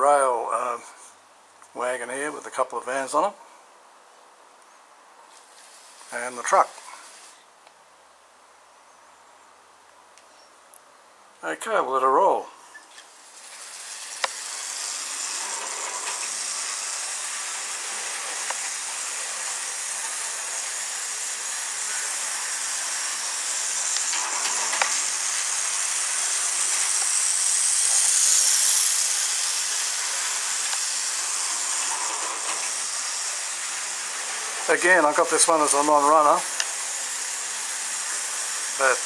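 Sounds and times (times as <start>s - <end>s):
model train motor whirring: 5.3s - 7.5s, 12.8s - 39.0s.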